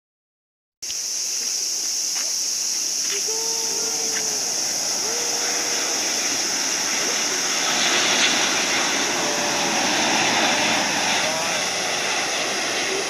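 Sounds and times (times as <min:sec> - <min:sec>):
high-pitched hiss: 0:00.8 - 0:13.0
jet airliner rumble: 0:02.8 - 0:13.0.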